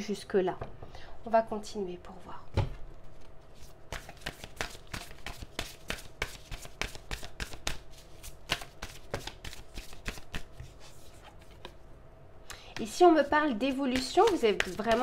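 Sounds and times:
cards shuffled by hand: 0:03.1 - 0:11.8.

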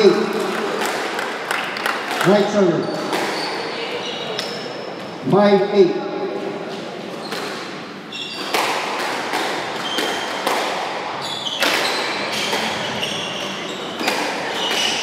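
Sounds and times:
shoes squeaking on wooden floor: 0:02.7 - 0:05.2, 0:06.7 - 0:08.7, 0:09.7 - 0:10.4, 0:11.1 - 0:15.0
squash ball cracking off rackets: 0:03.0 - 0:03.6, 0:08.4 - 0:12.9, 0:14.0 - 0:15.0.

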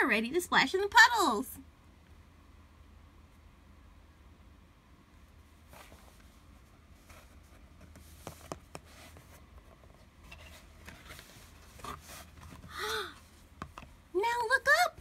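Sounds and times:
book page turning: 0:05.6 - 0:06.3, 0:07.0 - 0:12.7.

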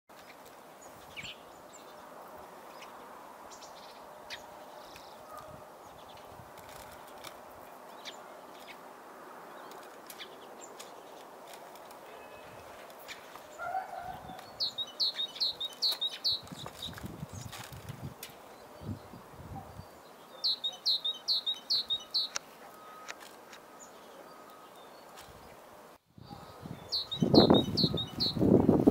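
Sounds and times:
songbird chirping: 0:00.1 - 0:28.6
low wind buffets: 0:00.8 - 0:20.1, 0:25.3 - 0:28.9
steady wind noise: 0:00.9 - 0:13.0, 0:13.6 - 0:20.0, 0:25.3 - 0:28.9.

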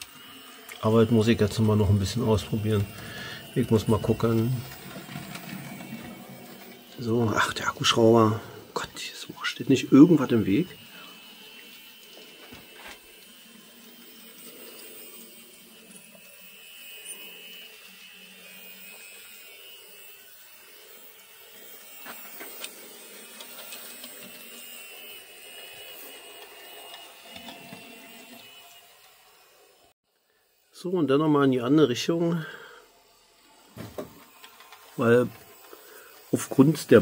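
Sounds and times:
wheels clicking on rails: 0:00.0 - 0:08.3
model train motor whine: 0:00.0 - 0:37.0.

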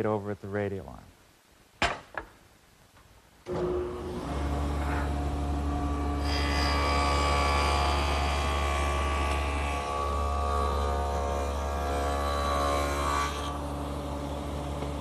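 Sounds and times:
table saw running: 0:03.5 - 0:15.0.

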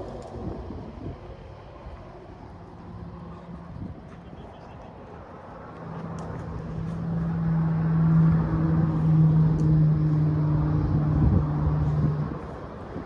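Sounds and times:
wind noise: 0:00.0 - 0:04.9, 0:07.6 - 0:13.0
engine droning: 0:00.0 - 0:13.0.

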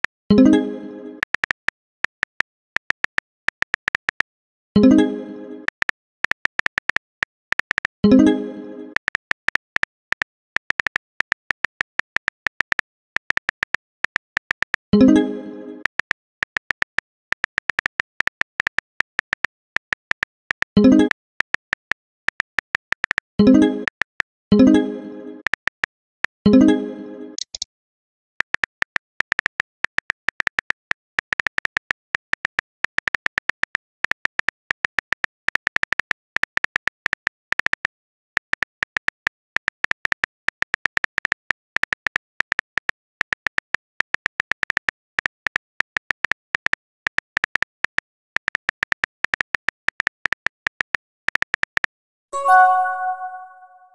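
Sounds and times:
message chime: 0:52.4 - 0:53.9.

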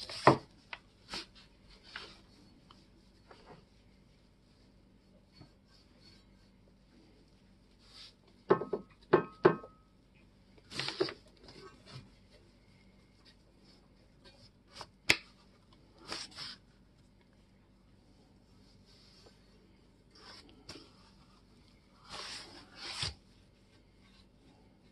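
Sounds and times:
paintbrush dabbing: 0:00.6 - 0:08.8
sharp knocks with ringing tone: 0:08.5 - 0:09.7.

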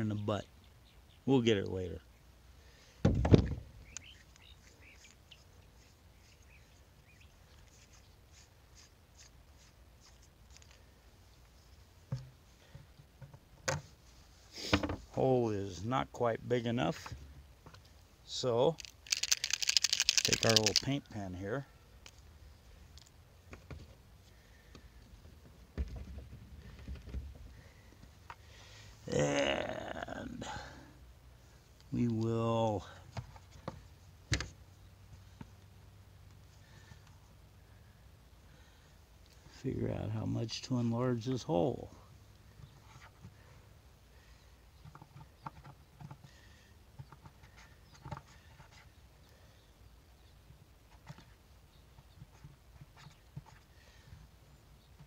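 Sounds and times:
faint bird chirps: 0:03.8 - 0:08.5.

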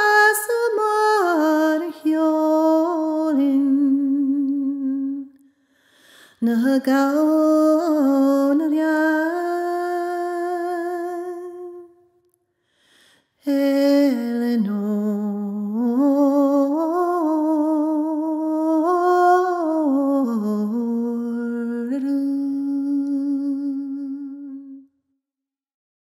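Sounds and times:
quick breath: 0:05.5 - 0:06.4, 0:12.6 - 0:13.4.

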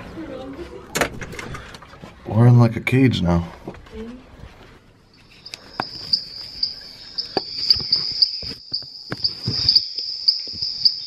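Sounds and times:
insect trill: 0:05.1 - 0:11.0.

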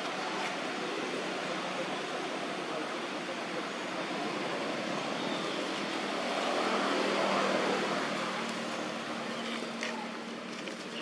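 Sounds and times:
broad rushing background: 0:00.0 - 0:10.7.

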